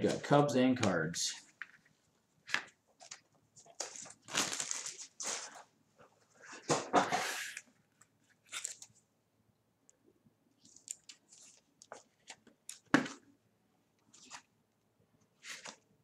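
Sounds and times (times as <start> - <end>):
cards rustling and clicking: 10.6 - 13.2.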